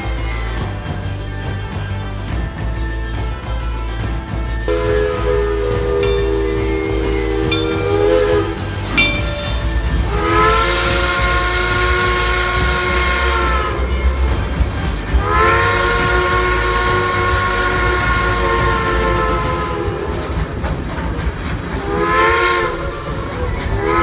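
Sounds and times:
steam locomotive whistle: 0:04.7 - 0:20.7, 0:21.8 - 0:24.0.

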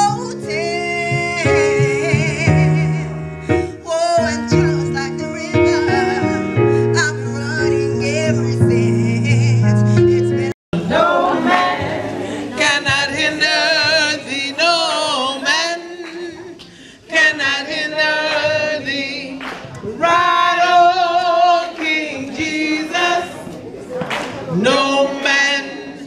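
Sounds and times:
unaccompanied singing with vibrato: 0:00.0 - 0:26.0.

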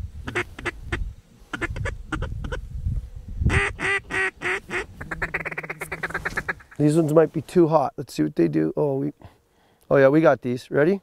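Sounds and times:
duck call quacks: 0:00.3 - 0:00.8, 0:03.5 - 0:06.7.

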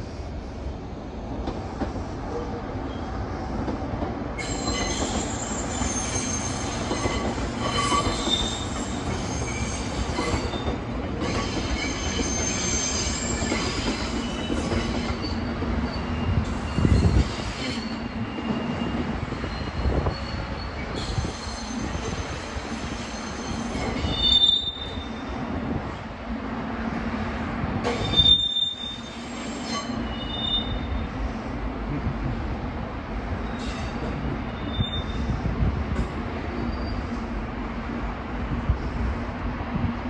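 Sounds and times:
electric train running past: 0:00.0 - 0:40.0
train wheels squealing: 0:04.4 - 0:25.4, 0:27.9 - 0:31.2, 0:33.4 - 0:35.5, 0:36.5 - 0:37.2.

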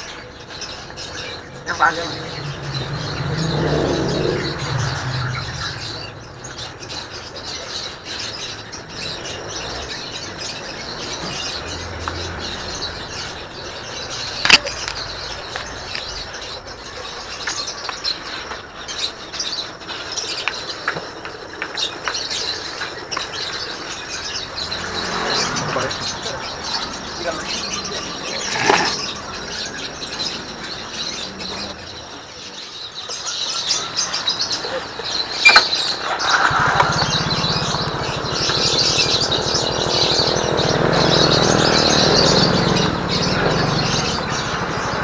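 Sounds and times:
small birds chirping: 0:00.0 - 0:45.0.

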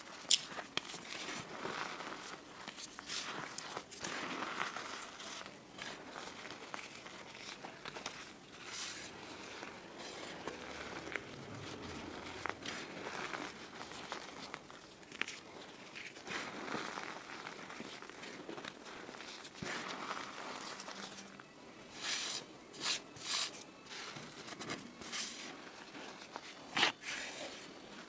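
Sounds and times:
powder rustling: 0:00.0 - 0:28.0
lumps crunching: 0:00.3 - 0:22.9.

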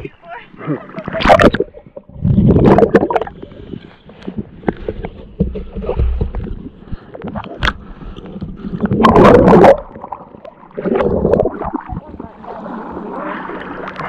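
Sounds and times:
water sloshing and splashing: 0:00.0 - 0:14.0
underwater bubbles gurgling: 0:00.8 - 0:14.0
small underwater clicks and knocks: 0:01.2 - 0:09.3.

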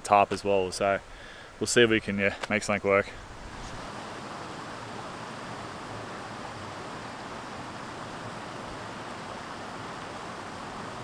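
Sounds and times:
river water rushing over rocks: 0:03.4 - 0:11.0.

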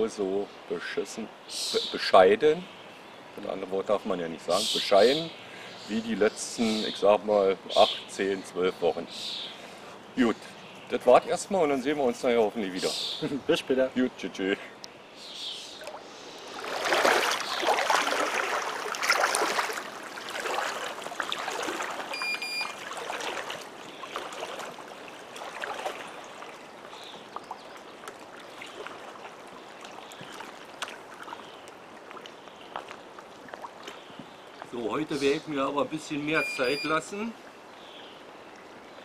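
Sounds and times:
water splashing around wading person: 0:15.7 - 0:34.8
short high electronic beep: 0:22.2 - 0:22.7.

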